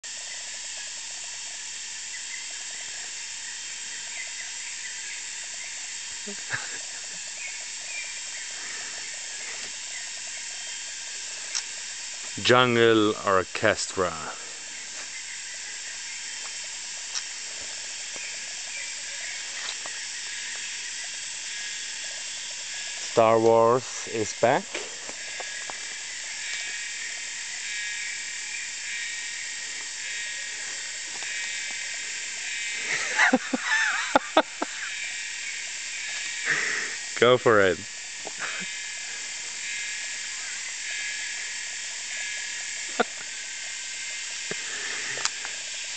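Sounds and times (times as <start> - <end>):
insect drone: 0.0 - 45.9
faint chirps: 0.1 - 37.8.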